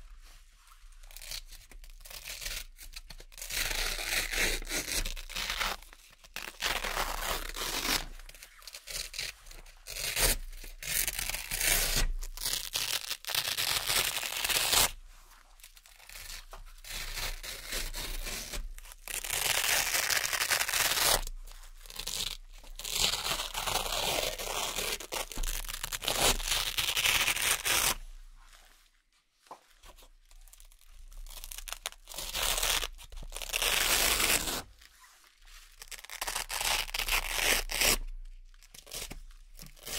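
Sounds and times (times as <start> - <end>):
velcro ripping: 1.0 - 15.0, 15.8 - 28.0, 30.3 - 35.0, 35.7 - 39.9.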